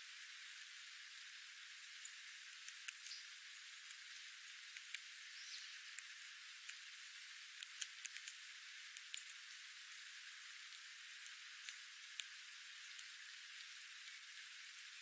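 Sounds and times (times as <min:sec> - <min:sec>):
steady high hiss: 0:00.0 - 0:15.0
bird pecking on concrete: 0:05.8 - 0:14.3.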